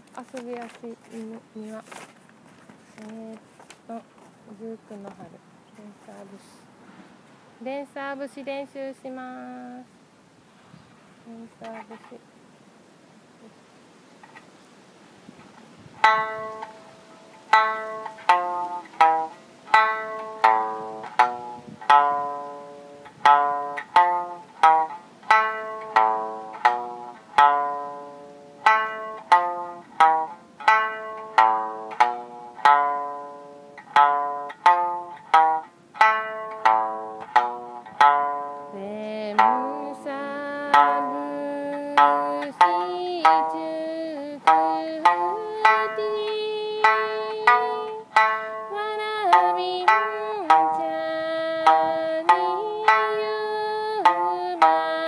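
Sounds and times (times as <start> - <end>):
plucked lute melody: 14.2 - 14.5, 15.4 - 55.0
person singing wavering notes: 16.0 - 55.0.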